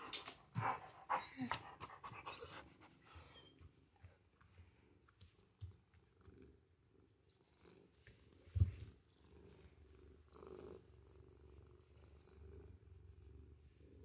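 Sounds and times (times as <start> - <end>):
cat purring: 5.8 - 14.0.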